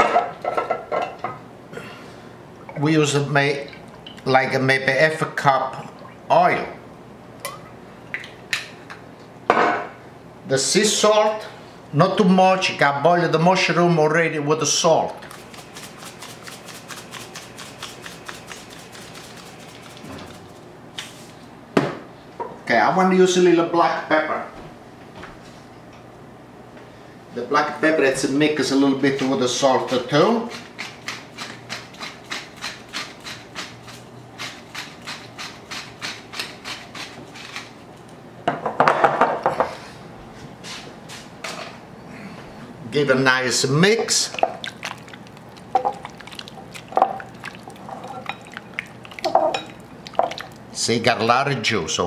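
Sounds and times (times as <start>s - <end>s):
pepper mill grinding peppercorns: 15.1s - 20.6s, 29.8s - 37.7s
salt shaker patter: 15.1s - 20.6s.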